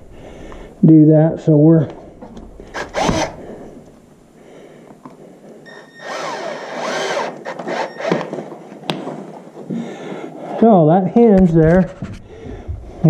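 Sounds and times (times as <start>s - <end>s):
cordless drill whining: 2.6s - 4.0s, 5.6s - 8.5s.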